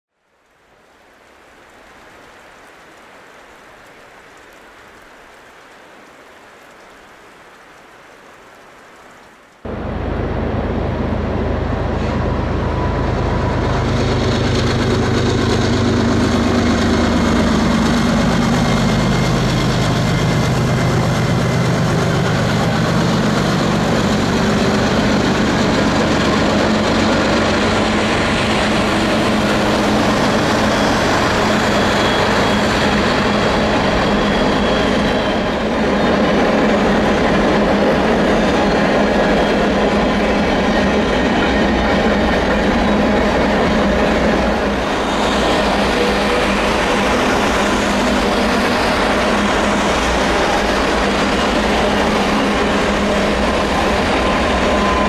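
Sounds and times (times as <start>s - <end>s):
faint steady hiss: 0.2s - 10.8s
diesel locomotive engine rumble: 9.7s - 55.0s.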